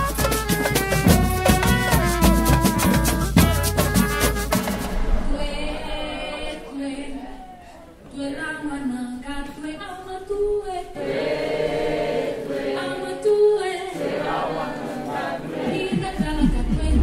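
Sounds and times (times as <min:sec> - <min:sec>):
low beats: 0:01.4 - 0:07.2, 0:15.1 - 0:17.0
group singing without instruments: 0:04.6 - 0:08.4, 0:10.8 - 0:17.0.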